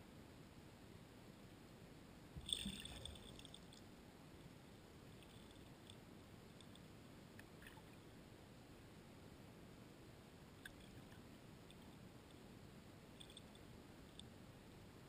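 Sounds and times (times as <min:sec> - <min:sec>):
underwater crackle of clicks: 0:02.4 - 0:03.9, 0:10.6 - 0:11.9, 0:13.2 - 0:14.3.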